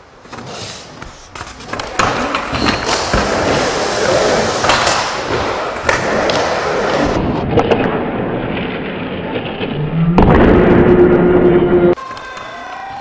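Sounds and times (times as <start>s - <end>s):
skateboard wheels rolling: 0.1s - 9.6s.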